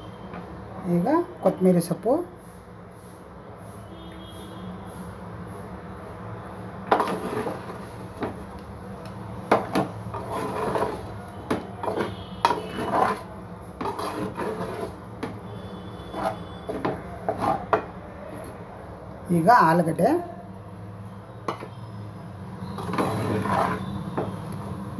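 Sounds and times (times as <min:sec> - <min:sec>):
wooden spatula scraping metal pot: 0:06.8 - 0:08.5, 0:09.5 - 0:18.5, 0:22.6 - 0:24.5.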